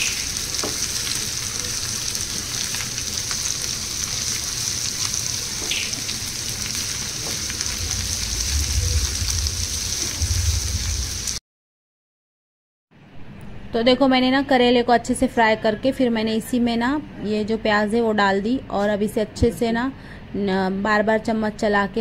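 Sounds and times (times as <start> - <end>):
vegetables sizzling in hot oil: 0.0 - 11.4.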